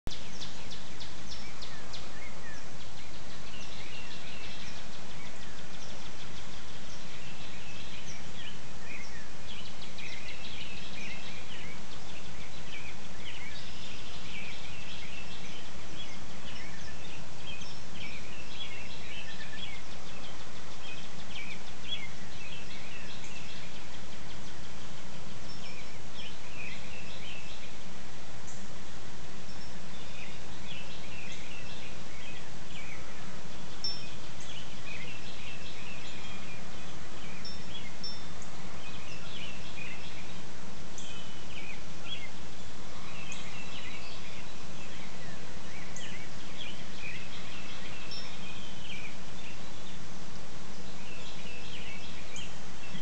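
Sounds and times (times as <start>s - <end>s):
songbirds singing: 0.1s - 53.0s.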